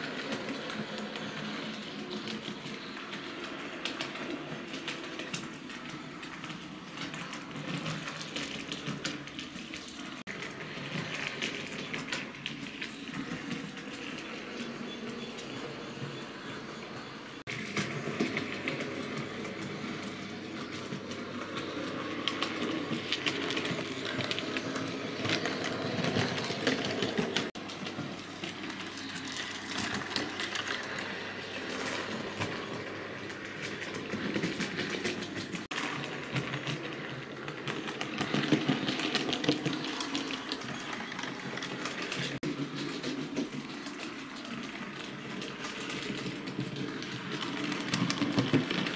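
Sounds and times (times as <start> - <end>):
model train wheels clicking: 0.0 - 48.9.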